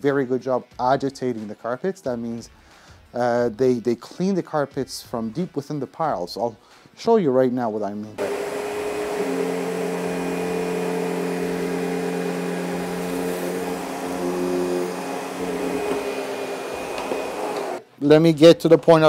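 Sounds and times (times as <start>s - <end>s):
upright vacuum running on carpet: 8.2s - 17.8s.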